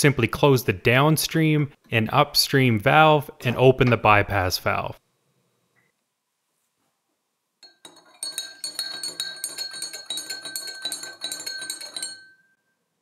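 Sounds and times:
spoon clinking against glass: 0:07.6 - 0:12.7
glass ringing: 0:07.6 - 0:13.0.

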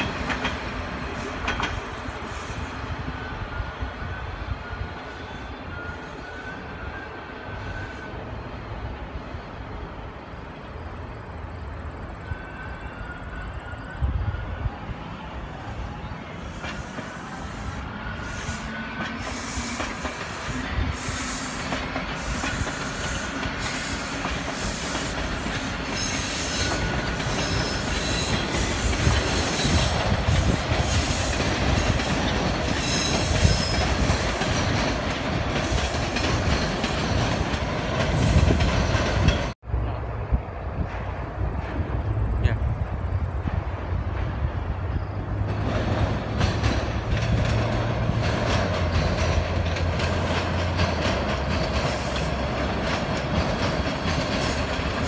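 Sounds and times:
wheels clicking over rail joints: 0:00.0 - 0:02.0, 0:43.4 - 0:55.0
subway train rumbling past: 0:00.0 - 0:55.0
wheel squeals: 0:16.0 - 0:37.0.

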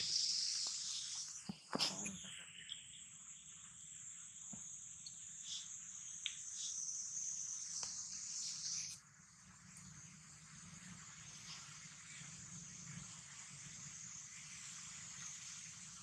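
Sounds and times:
insects droning: 0:00.0 - 0:16.0
faint ticks: 0:04.5 - 0:06.9, 0:07.6 - 0:09.0.

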